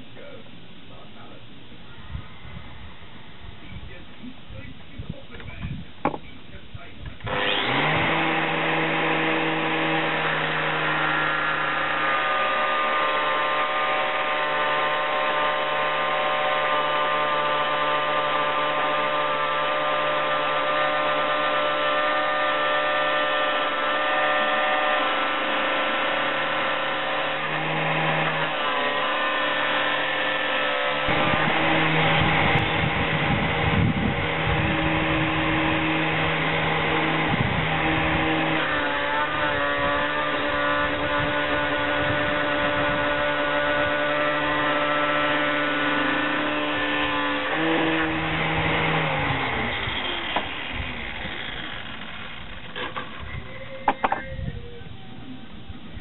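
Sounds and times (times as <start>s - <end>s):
angle grinder cutting metal: 7.3s - 53.4s.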